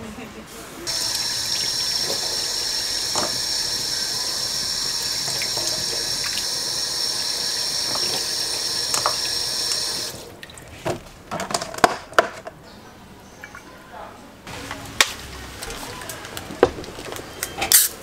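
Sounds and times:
tap water spraying into steel sink: 0:00.9 - 0:10.2.

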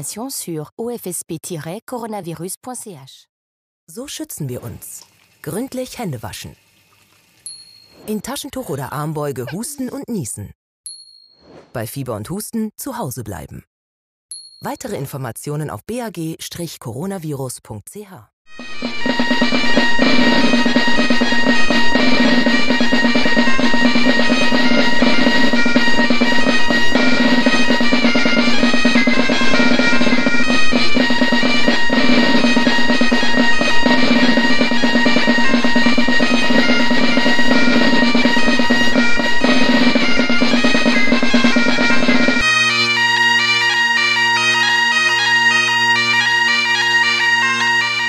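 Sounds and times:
drums: 0:18.5 - 0:42.4
bagpipes playing a tune: 0:18.5 - 0:48.0.

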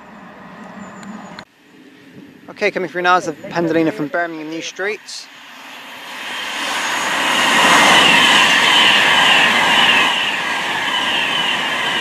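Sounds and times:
electric train passing at speed: 0:00.0 - 0:12.0.

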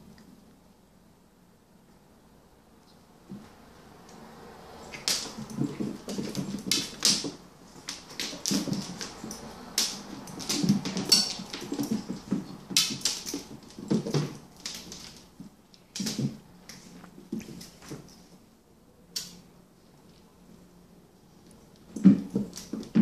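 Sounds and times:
cat claws clicking on wooden floor: 0:04.9 - 0:17.9.

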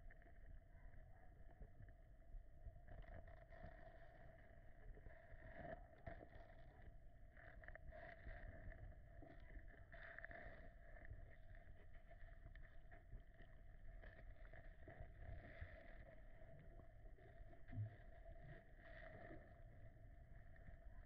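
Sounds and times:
low underwater rumble: 0:00.0 - 0:21.0.

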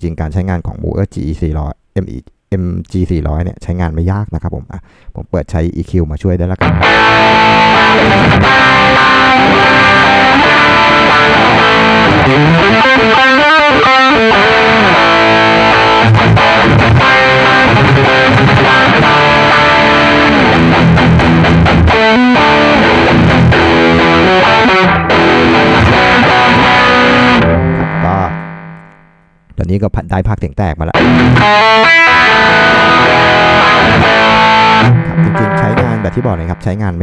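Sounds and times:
distorted electric guitar: 0:06.6 - 0:29.5, 0:30.9 - 0:37.0.

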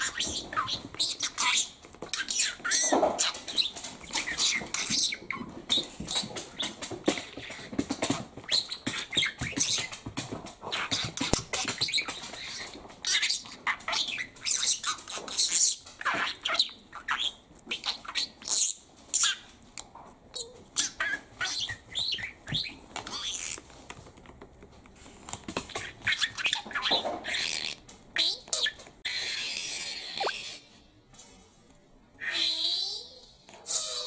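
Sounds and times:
budgerigar chattering: 0:20.4 - 0:23.6.

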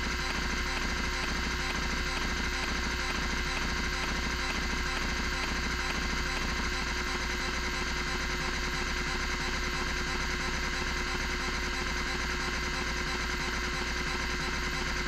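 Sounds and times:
stepper motor stepping: 0:00.0 - 0:08.9
hard drive spindle motor whine: 0:00.0 - 0:15.0.

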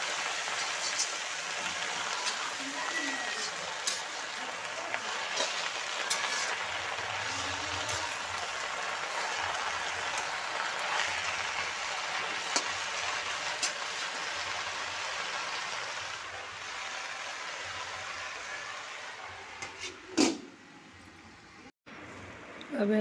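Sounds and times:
greens sizzling in a pan: 0:00.0 - 0:20.0.

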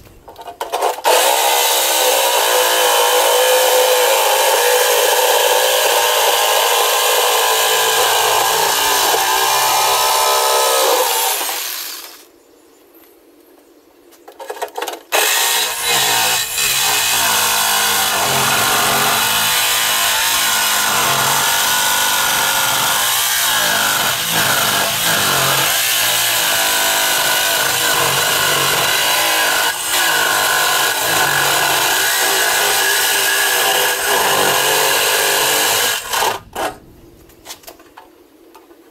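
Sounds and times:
jigsaw cutting through steel: 0:00.6 - 0:12.3, 0:15.1 - 0:36.7.

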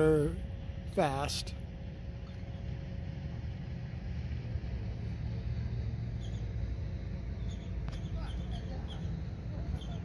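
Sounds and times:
low outdoor rumble: 0:00.0 - 0:10.0
faint high bird chirps: 0:06.1 - 0:06.6, 0:07.3 - 0:10.0.

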